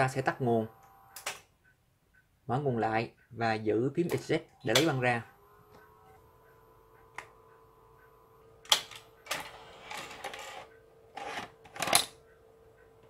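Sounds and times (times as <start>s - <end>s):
faint steady hum: 0.0s - 13.0s
cassette mechanism clicking: 8.6s - 9.4s.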